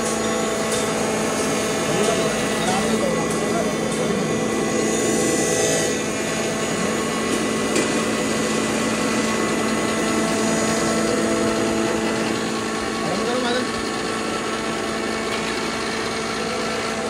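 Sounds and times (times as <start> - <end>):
electric grinder humming: 0.0 - 17.0.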